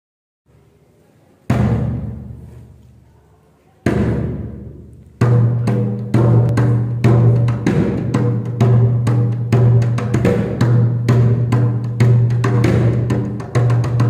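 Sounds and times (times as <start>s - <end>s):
deep drum hits: 1.5s - 2.5s, 3.9s - 14.0s.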